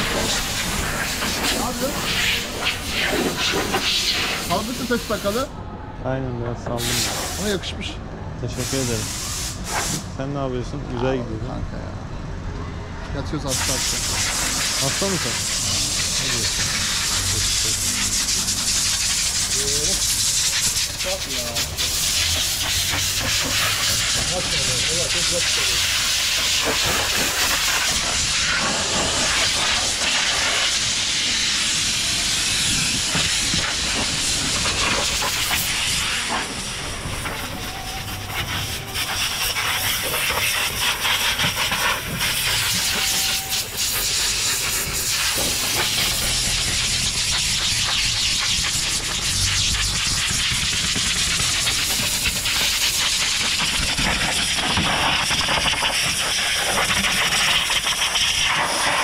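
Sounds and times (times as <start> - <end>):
pressure washer spraying: 0.0 - 5.5, 6.8 - 7.7, 8.6 - 10.1, 13.5 - 59.0.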